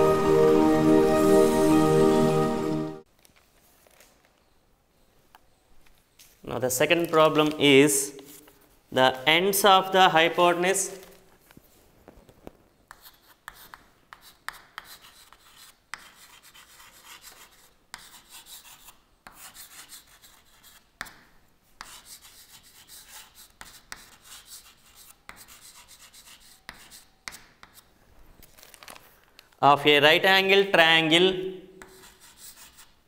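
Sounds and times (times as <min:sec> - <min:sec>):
chalk scratching on chalkboard: 0:12.9 - 0:21.2, 0:21.8 - 0:27.9, 0:31.8 - 0:33.0
chalk tapping board: 0:12.9 - 0:27.9, 0:31.8 - 0:33.0.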